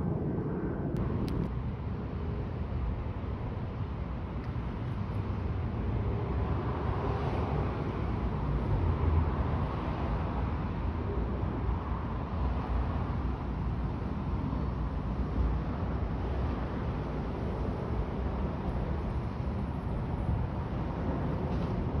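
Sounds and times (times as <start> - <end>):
jet airliner passing overhead: 0.0 - 1.5.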